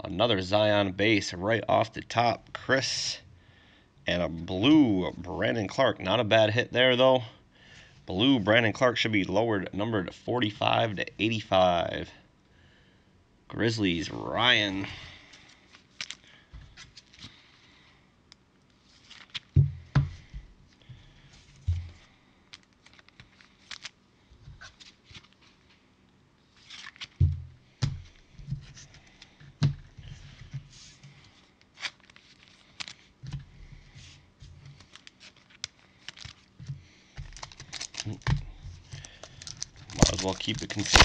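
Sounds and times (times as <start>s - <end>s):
rustles and scrapes: 29.9s - 36.7s.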